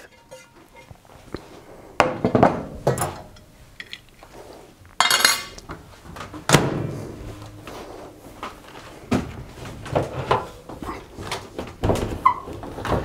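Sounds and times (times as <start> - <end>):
glass plate clinking and clattering: 0.0 - 1.0, 5.0 - 5.6.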